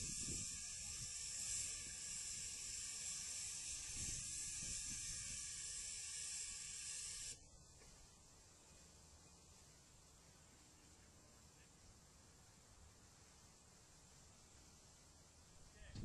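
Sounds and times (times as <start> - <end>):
steam hissing: 0.0 - 7.4.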